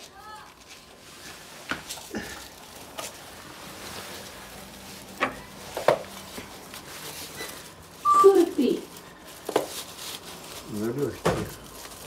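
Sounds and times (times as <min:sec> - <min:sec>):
faint rustling: 0:00.0 - 0:12.0.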